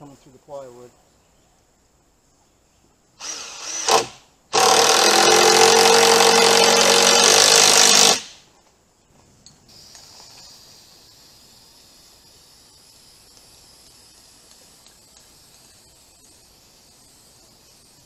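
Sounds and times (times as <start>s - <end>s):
cordless drill driving screw: 3.2s - 8.3s
aerosol spray can hiss: 9.7s - 18.0s.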